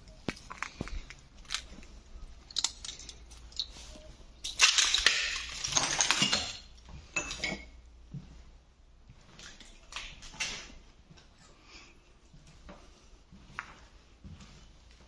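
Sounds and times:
footsteps crunching on broken glass: 0.0 - 6.6
glass shards clinking: 4.4 - 7.7.

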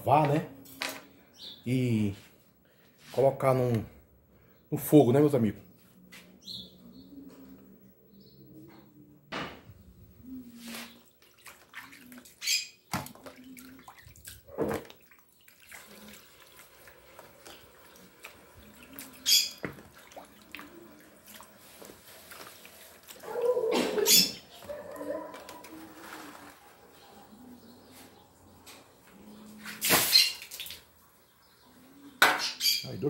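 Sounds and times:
water dripping and splashing: 11.0 - 25.7, 29.6 - 31.0.

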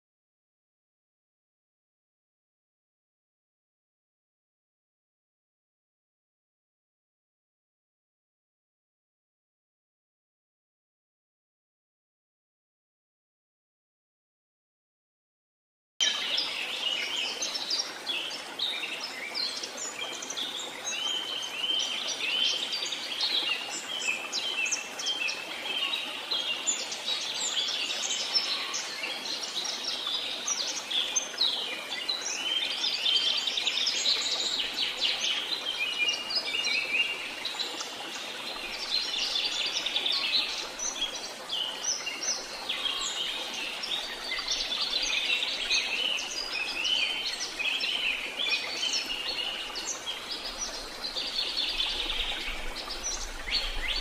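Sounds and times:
flowing water: 16.0 - 54.0
small birds chirping and trilling: 16.0 - 54.0.

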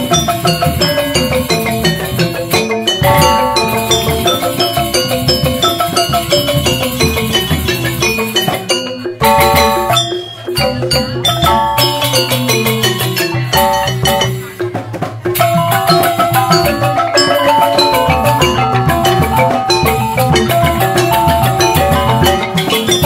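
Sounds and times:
bamboo xylophones played with mallets: 0.0 - 23.0
hand drums: 0.0 - 23.0.

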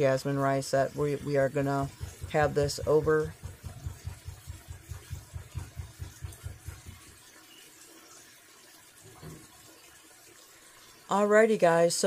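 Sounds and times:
sauce simmering and sizzling: 0.0 - 11.2
wooden spoon knocking a pan: 1.2 - 7.2.

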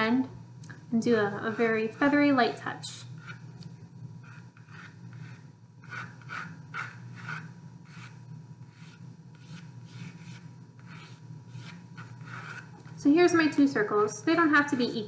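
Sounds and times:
steady low hum: 0.0 - 15.0
pencil scratching on paper: 3.0 - 3.4, 4.2 - 12.9.

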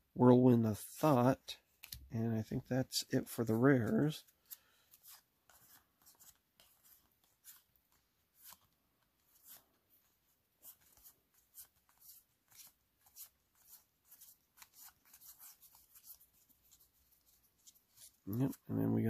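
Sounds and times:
trading cards sliding and clicking: 3.5 - 9.7.

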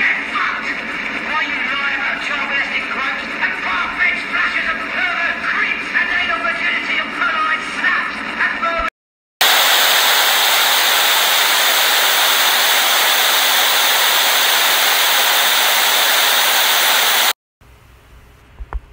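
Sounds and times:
television static hiss: 9.4 - 17.3.

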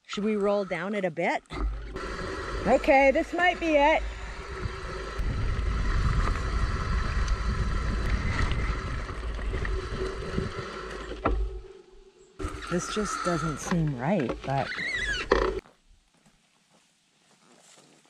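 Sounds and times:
bicycle rumbling on dirt track: 1.5 - 11.7
wind buffeting microphone: 1.9 - 11.7.

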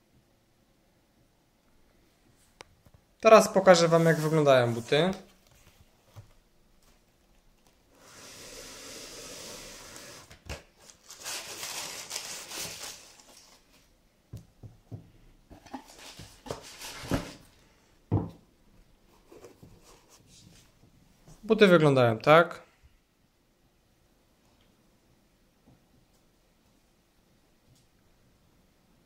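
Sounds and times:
tissue paper and cardboard rustling: 3.4 - 5.8, 10.0 - 13.9, 15.6 - 17.5.

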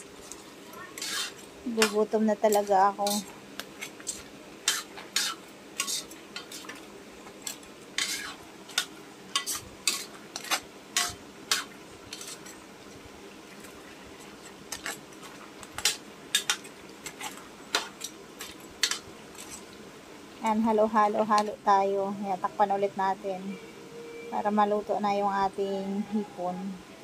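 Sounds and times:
metal spatula scraping pot: 0.9 - 6.8, 7.4 - 12.6, 18.8 - 19.6.

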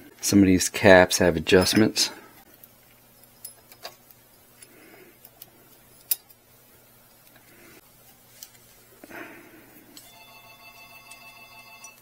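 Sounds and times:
small metal parts clicking: 2.5 - 6.4.

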